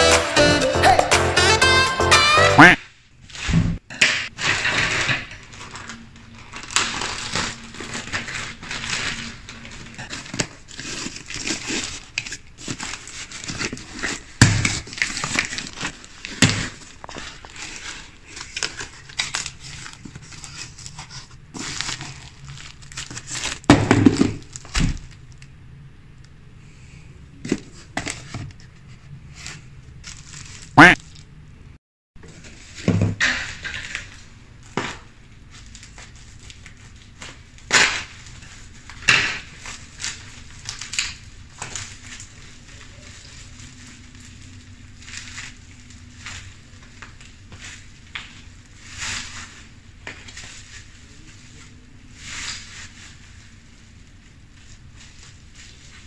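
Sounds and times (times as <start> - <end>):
plastic mailer crinkling and tearing: 4.4 - 25.4, 29.3 - 31.3, 32.3 - 51.4.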